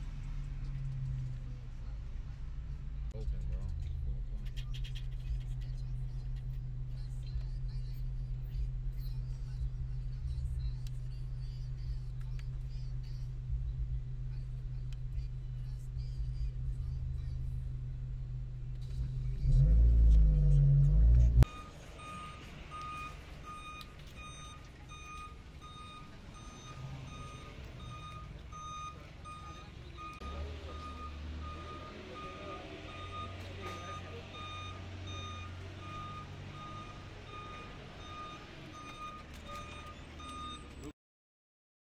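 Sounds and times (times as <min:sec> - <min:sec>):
city traffic noise: 0:00.0 - 0:40.9
low vehicle rumble: 0:00.0 - 0:40.9
truck reversing alarm beeping: 0:19.5 - 0:40.9.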